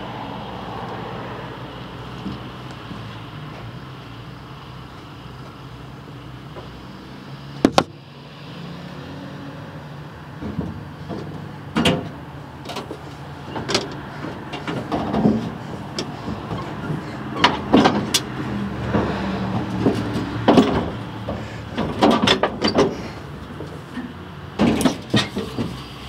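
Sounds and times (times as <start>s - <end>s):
knocks and clatters: 10.4s - 25.9s.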